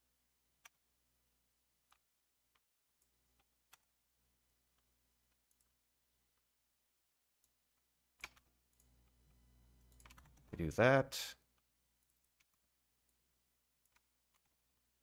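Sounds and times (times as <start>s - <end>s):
computer clicks: 9.8s - 10.6s.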